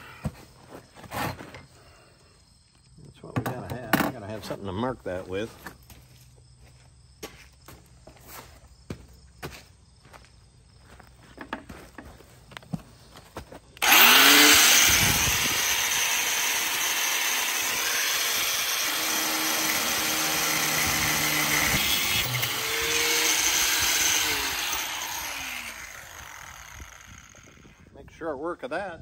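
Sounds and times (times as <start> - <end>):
angle grinder grinding steel: 13.8 - 27.8.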